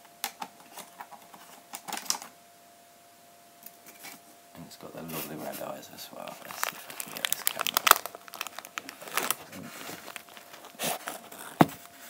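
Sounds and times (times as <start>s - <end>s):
plastic tub crinkling: 5.1s - 11.9s.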